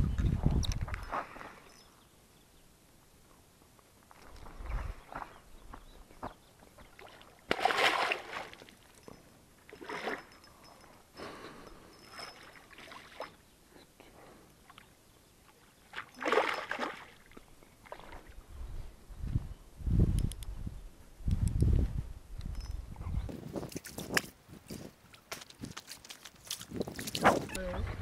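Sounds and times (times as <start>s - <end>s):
fish splashing in water: 7.0s - 8.8s.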